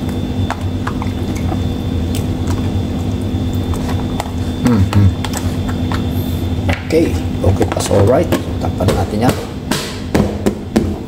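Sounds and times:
wet squishing of fish in marinade: 0:00.0 - 0:04.4
low hum: 0:00.0 - 0:10.8.

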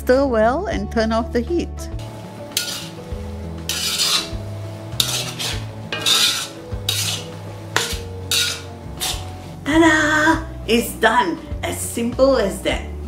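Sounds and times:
metal spatula scraping a wok: 0:02.5 - 0:09.6.

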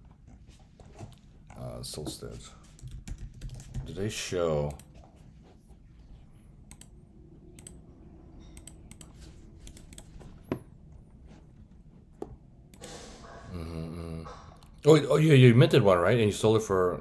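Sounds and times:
faint steady hum: 0:00.0 - 0:17.0
mouse and keyboard clicks: 0:06.7 - 0:06.9, 0:08.4 - 0:10.6.

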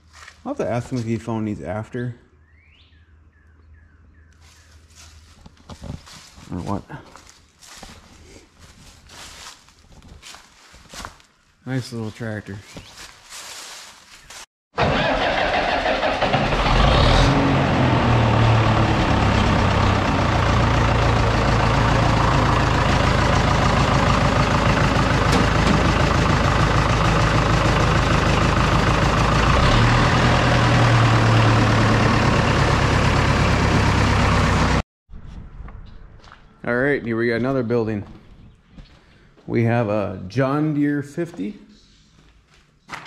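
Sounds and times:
tractor diesel engine running: 0:14.8 - 0:34.8.

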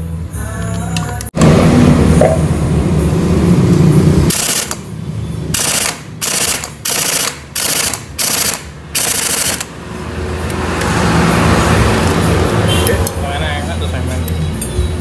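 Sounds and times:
impact wrench rattling bursts: 0:04.3 - 0:04.8, 0:05.5 - 0:09.8.

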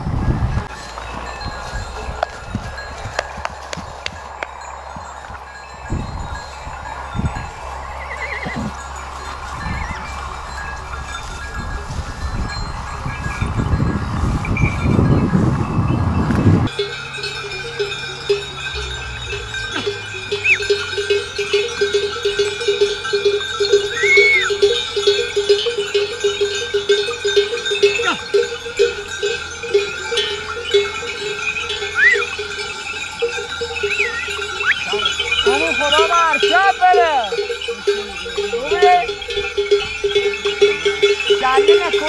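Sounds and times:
animal bells clinking: 0:00.0 - 0:42.0
short high calls: 0:18.0 - 0:21.6, 0:23.9 - 0:24.7, 0:31.8 - 0:32.4, 0:33.6 - 0:37.3.

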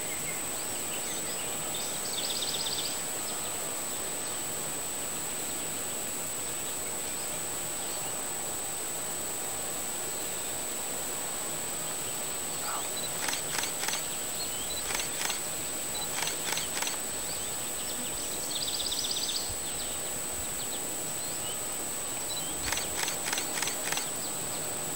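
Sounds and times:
steady hiss: 0:00.0 - 0:24.9
constant high-pitched tone: 0:12.6 - 0:24.9
sharp clicks: 0:13.2 - 0:14.2, 0:14.8 - 0:17.1, 0:22.6 - 0:24.2.

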